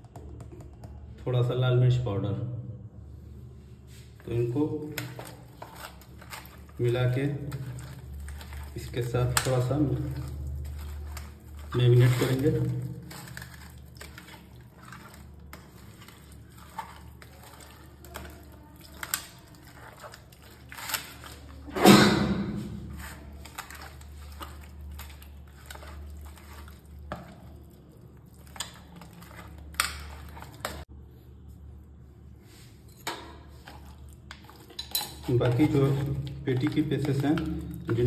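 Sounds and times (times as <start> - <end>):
hands squishing wet fish: 3.8 - 21.7, 22.6 - 31.6.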